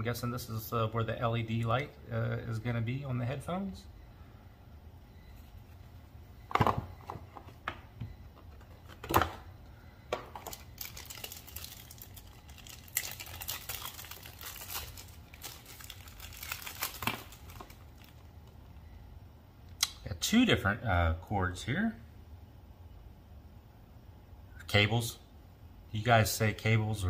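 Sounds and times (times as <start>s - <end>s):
plastic bag crinkling: 10.3s - 18.3s.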